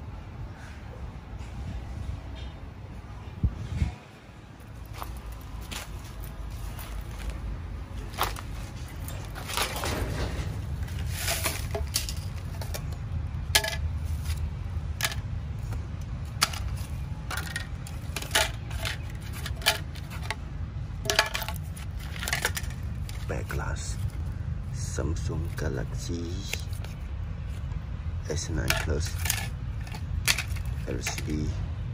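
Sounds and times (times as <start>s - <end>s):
steady low rumble: 0.0s - 31.9s
small hard objects clinking: 10.8s - 20.4s, 21.0s - 24.2s, 28.6s - 31.5s.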